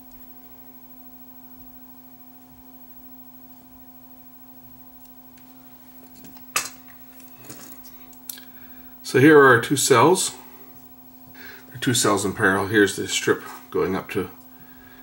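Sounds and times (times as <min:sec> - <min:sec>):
low electrical hum: 0:00.0 - 0:15.0.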